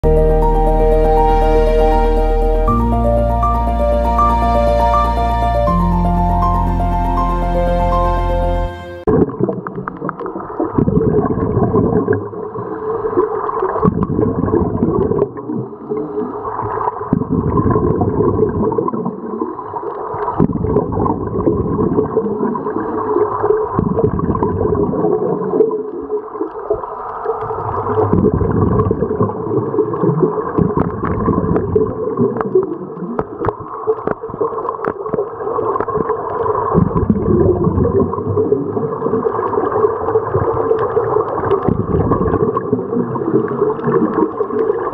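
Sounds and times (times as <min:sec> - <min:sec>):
muffled underwater regulator bubbling: 0:09.1 - 0:12.7, 0:13.7 - 0:16.3, 0:27.4 - 0:44.9.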